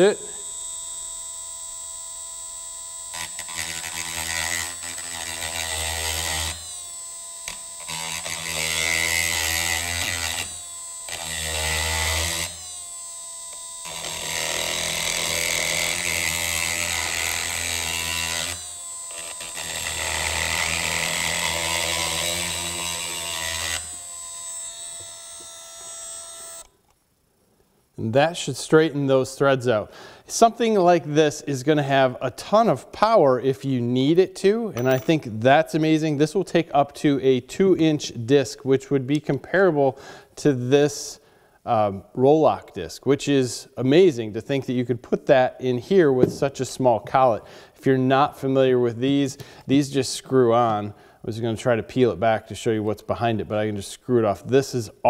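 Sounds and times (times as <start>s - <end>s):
rotary tool motor whine: 0.0s - 26.8s
metal-on-metal filing: 3.1s - 26.7s.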